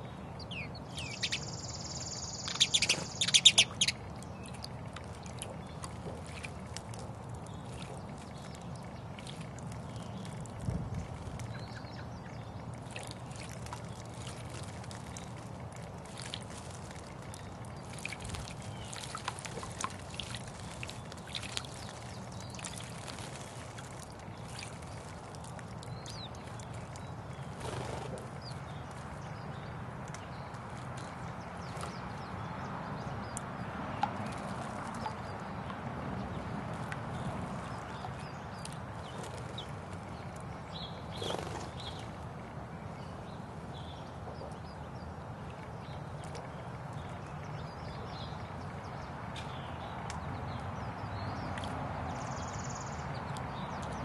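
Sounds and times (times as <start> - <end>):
sparrows chirping: 0.0 - 4.6, 37.1 - 42.1
birds splashing in water: 0.0 - 54.0
bird chirps: 0.4 - 4.0.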